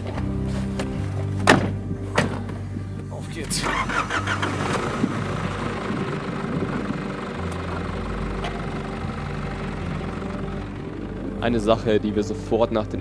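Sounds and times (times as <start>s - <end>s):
engine idling inside cab: 2.5s - 12.5s.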